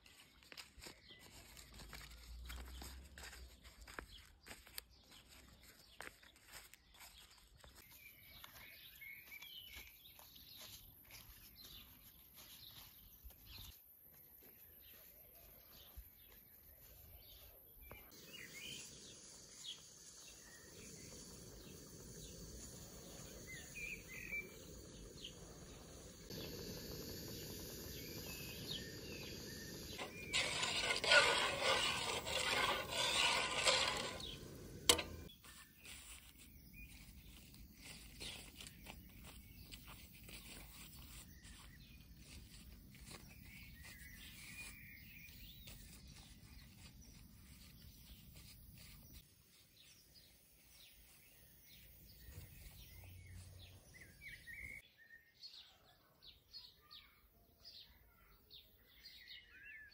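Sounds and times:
leaves rustling and tapping: 0.0s - 7.8s, 28.6s - 49.6s
birds chirping: 14.4s - 49.2s.

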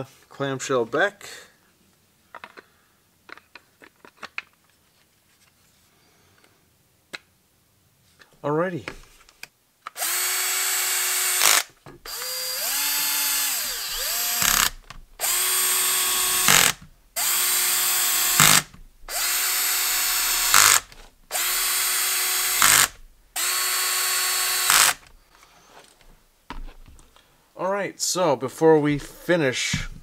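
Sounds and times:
cordless drill motor whine: 10.0s - 25.1s.

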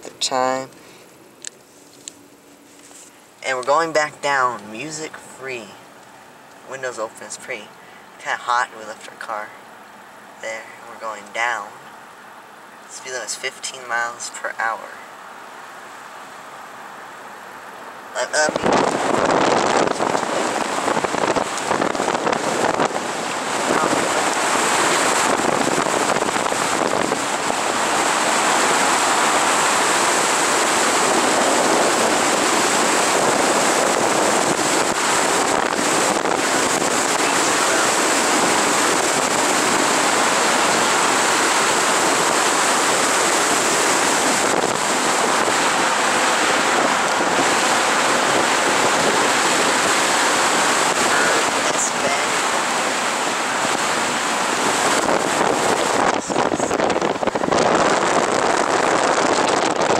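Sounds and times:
wind rushing over microphone: 18.3s - 59.9s.

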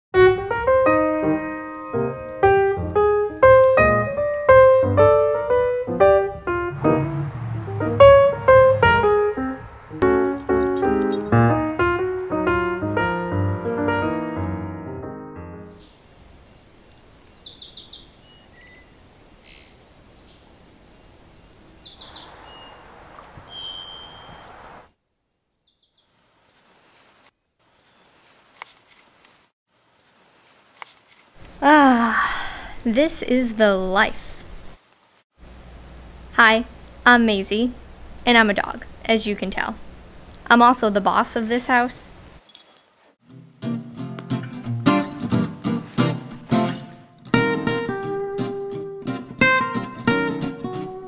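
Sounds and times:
solo piano melody: 0.2s - 15.8s
songbird trilling: 15.7s - 19.0s, 20.2s - 22.9s, 23.5s - 26.1s
short whistled bird note: 23.5s - 25.8s.

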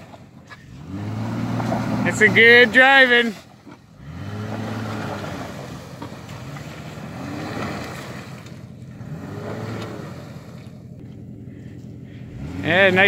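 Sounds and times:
pickup engine revving: 0.0s - 13.0s
tyres churning through mud: 0.0s - 13.0s.

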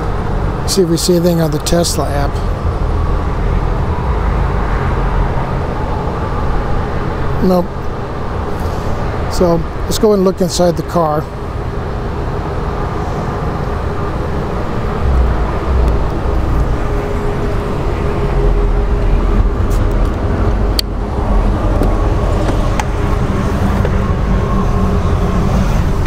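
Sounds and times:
low rumbling background noise: 0.0s - 26.0s.

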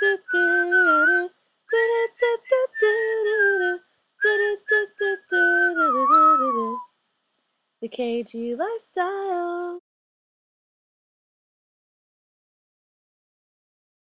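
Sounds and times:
person singing wordless melody: 0.0s - 6.8s, 7.8s - 9.8s.

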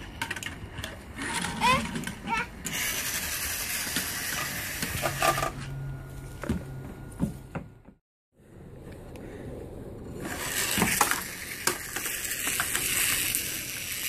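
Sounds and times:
toy cars clattering on wood: 10.3s - 14.0s.

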